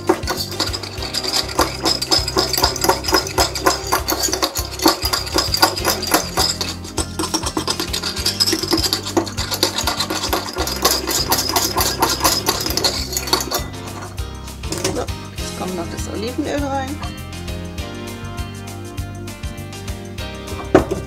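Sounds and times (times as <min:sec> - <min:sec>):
metal whisk clicking against glass bowl: 0:00.0 - 0:13.6.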